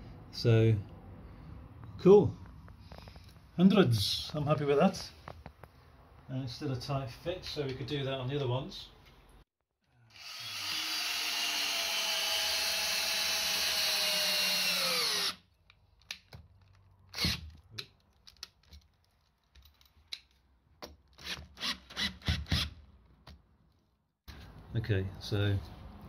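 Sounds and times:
cordless drill motor running: 0:10.1 - 0:15.4.

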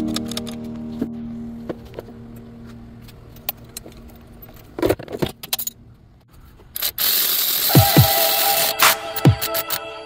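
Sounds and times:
loud electronic music: 0:07.7 - 0:10.0.

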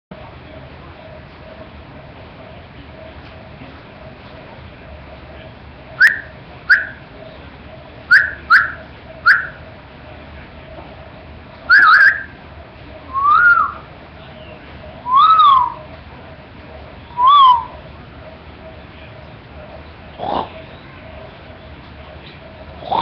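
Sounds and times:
squeaky whistle-like calls: 0:06.0 - 0:07.0, 0:08.1 - 0:09.6, 0:11.7 - 0:12.4, 0:13.1 - 0:15.9, 0:17.1 - 0:17.8.

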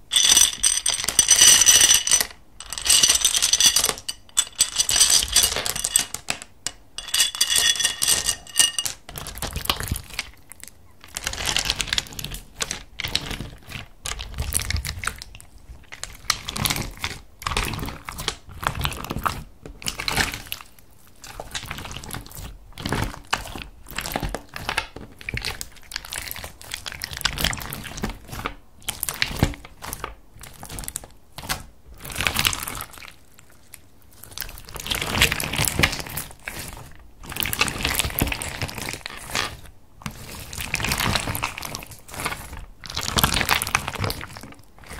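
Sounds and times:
beads rattling in plastic container: 0:00.0 - 0:09.5
slime squishing and crackling: 0:11.1 - 0:44.9.

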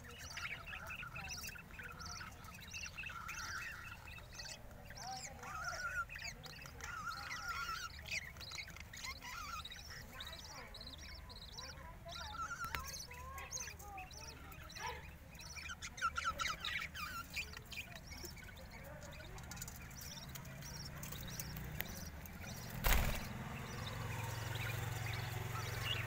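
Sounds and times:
budgerigars chirping: 0:00.0 - 0:26.0.

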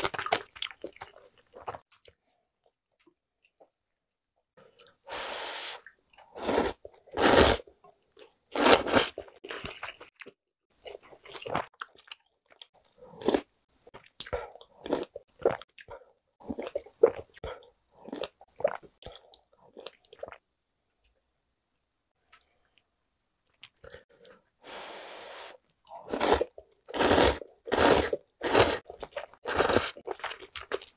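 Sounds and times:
noodle slurps: 0:26.0 - 0:30.1.

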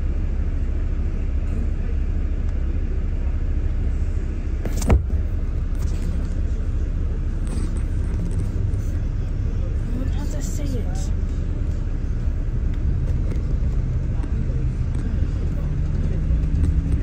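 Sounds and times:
bus engine and road rumble: 0:00.0 - 0:17.0.

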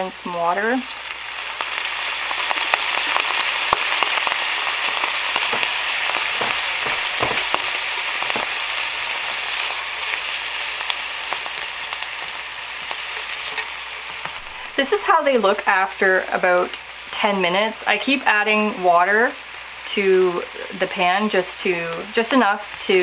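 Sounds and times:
onions sizzling in a pan: 0:00.0 - 0:23.0.

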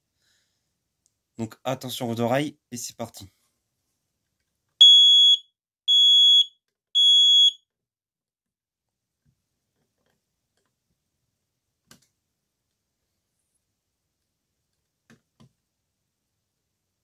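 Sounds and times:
smoke alarm beeps: 0:04.8 - 0:07.6.

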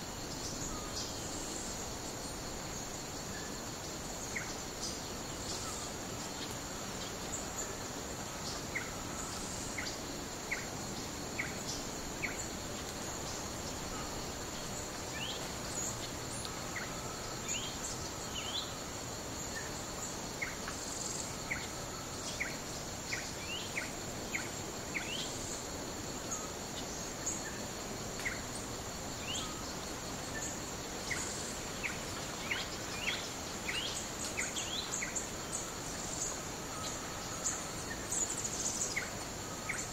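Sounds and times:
high insect drone: 0:00.0 - 0:39.9
small birds chirping: 0:26.3 - 0:39.9.

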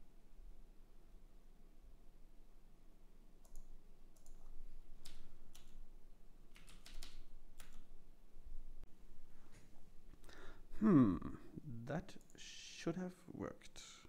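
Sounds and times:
typing on computer keyboard: 0:03.4 - 0:05.8, 0:06.5 - 0:07.9.

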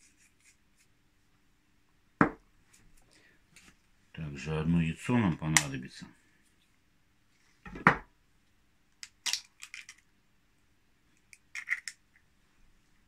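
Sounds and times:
egg knocked: 0:02.2 - 0:02.4.

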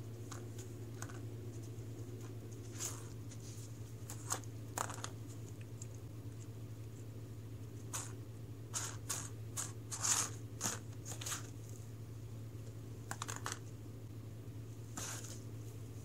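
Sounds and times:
steady low hum: 0:00.0 - 0:16.0
cat batting plastic rings: 0:04.0 - 0:05.9.

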